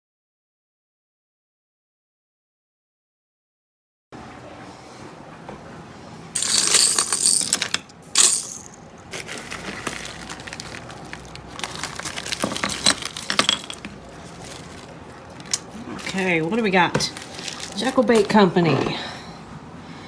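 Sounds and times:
tools clicking and rattling: 6.4 - 16.2
loud rustling: 6.4 - 18.4.

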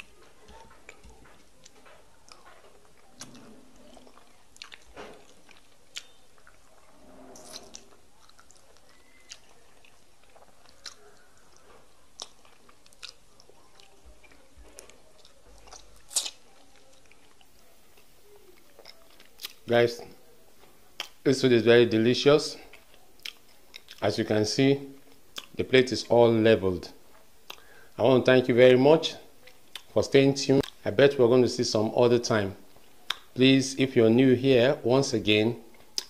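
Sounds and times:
soft chewing: 0.0 - 21.3, 22.2 - 25.8, 26.7 - 28.0, 29.0 - 30.9, 32.3 - 33.4, 35.3 - 36.0
wet mouth clicks and smacks: 4.1 - 6.6, 7.5 - 11.6, 15.2 - 16.4, 18.8 - 19.6, 21.0 - 21.2, 27.5 - 27.7, 29.7 - 29.9, 30.6 - 30.8, 33.1 - 33.3.

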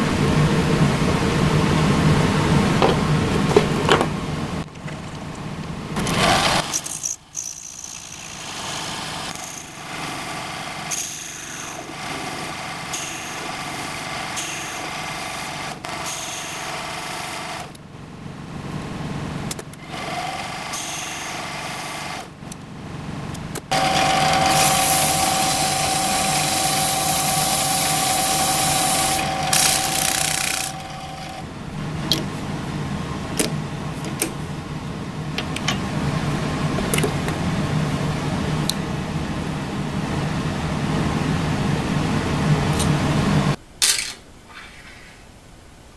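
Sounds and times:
metal lathe motor whine: 6.0 - 17.7, 19.9 - 22.3, 23.7 - 32.1
sandpaper hissing on spinning metal: 7.3 - 17.2, 20.7 - 22.1, 23.7 - 31.4.

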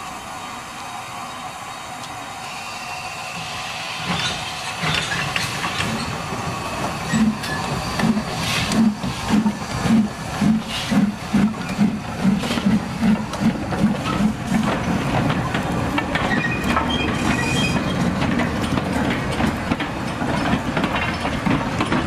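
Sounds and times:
steam train hissing: 0.0 - 20.8
steam train chuffing beat: 3.2 - 22.0.

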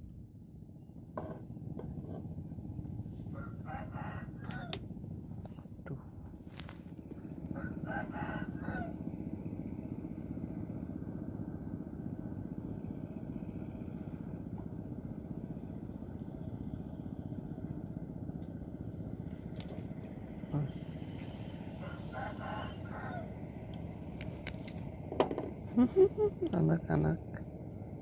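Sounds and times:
low motor drone: 0.0 - 28.0
rooster crowing: 3.3 - 4.8, 7.5 - 9.0, 21.5 - 23.5.

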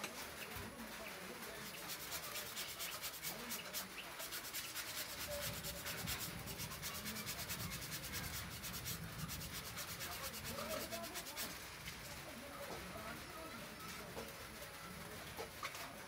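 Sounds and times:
hands rubbing rubber strip: 0.0 - 12.0.

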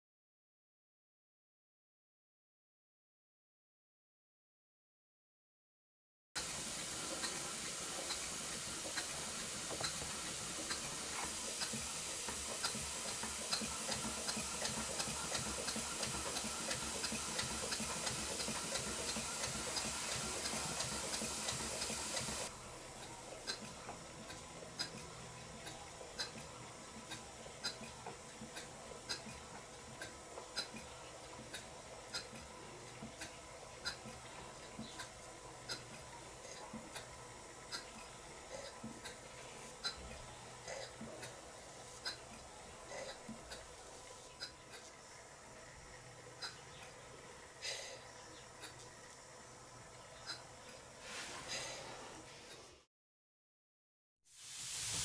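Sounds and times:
model steam engine ticking: 6.4 - 50.9
compressed air hissing: 54.3 - 55.0.

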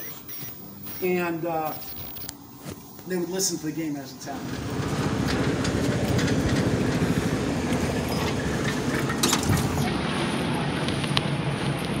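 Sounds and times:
sharp clicks: 0.0 - 2.4
ride-on mower engine drone: 4.4 - 12.0.

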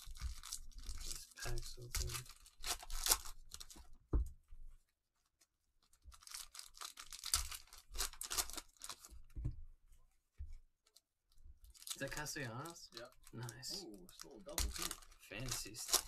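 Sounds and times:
cellophane wrappers crinkling: 0.0 - 3.9, 5.8 - 9.3, 11.6 - 16.0
soft thumps: 9.2 - 9.7.

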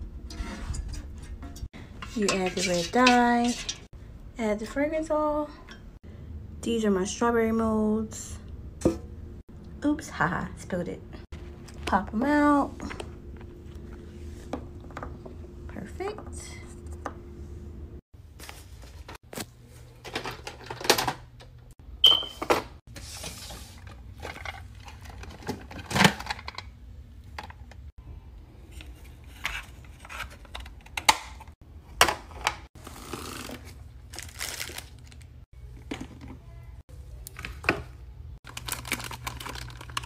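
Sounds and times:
plastic packaging crinkling: 33.1 - 35.4, 38.4 - 40.0.

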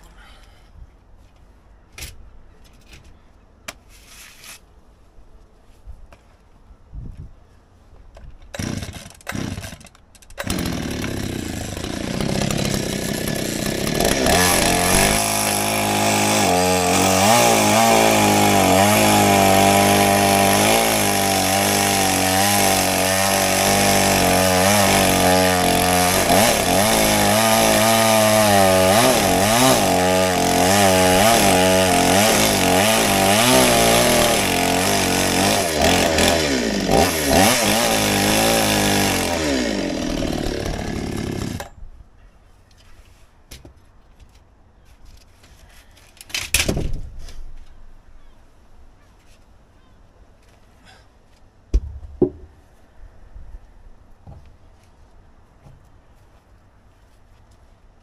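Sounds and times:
chainsaw cutting through log: 8.5 - 41.7
chainsaw engine revving: 8.6 - 41.7.

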